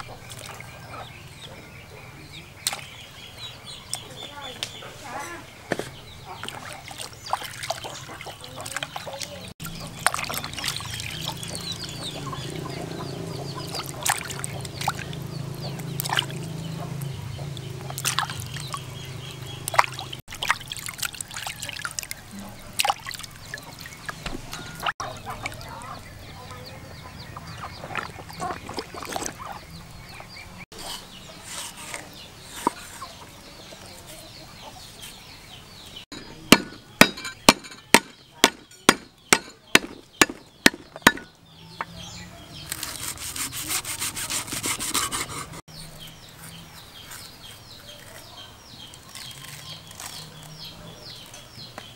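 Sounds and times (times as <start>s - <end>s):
water splashing and dribbling: 0.0s - 0.8s, 6.2s - 30.8s.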